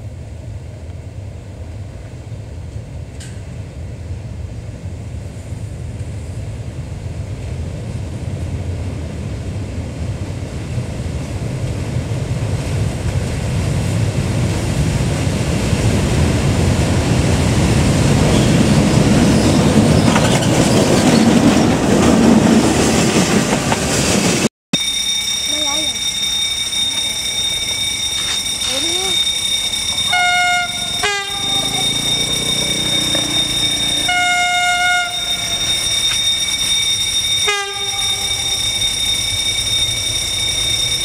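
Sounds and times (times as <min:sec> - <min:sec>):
diesel locomotive engine: 0:00.0 - 0:41.0
wheels clattering over rail joints: 0:18.1 - 0:24.5, 0:25.4 - 0:40.7.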